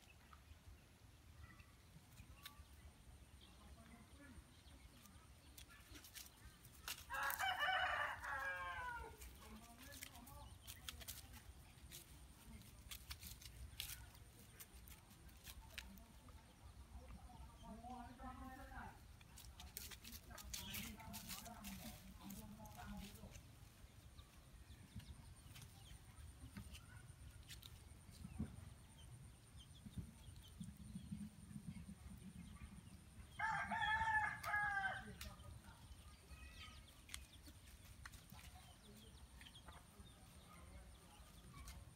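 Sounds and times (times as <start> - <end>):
rooster crowing: 7.1 - 9.1.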